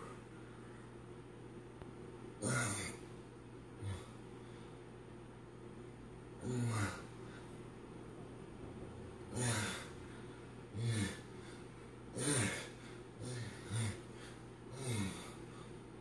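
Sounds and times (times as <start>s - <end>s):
man exhaling and grunting: 2.4s - 3.0s, 3.8s - 4.2s, 6.4s - 7.1s, 9.3s - 10.0s, 10.7s - 11.5s, 12.1s - 15.6s.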